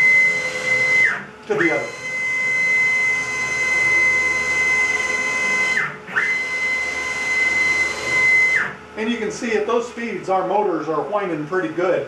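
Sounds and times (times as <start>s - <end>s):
stepper motors whining: 0.0s - 12.0s.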